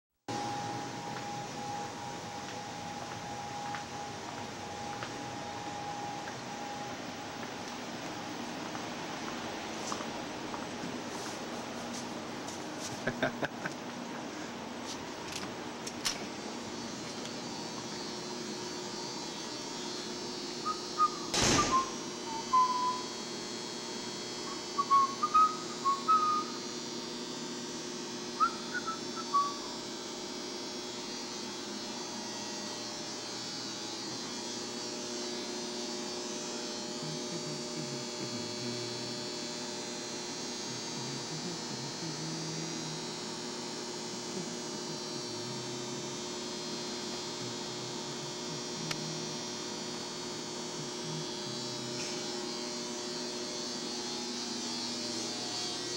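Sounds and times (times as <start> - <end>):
room hum: 0.3 - 55.9
whistled notes: 20.6 - 23.2, 24.5 - 26.6, 28.4 - 29.7
sharp click: 21.3 - 21.9.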